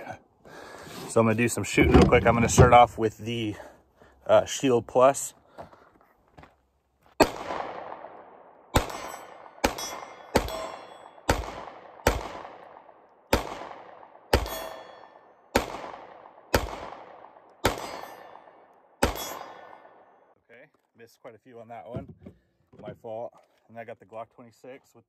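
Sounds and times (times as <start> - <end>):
pistol shots with echo: 7.2 - 20.2.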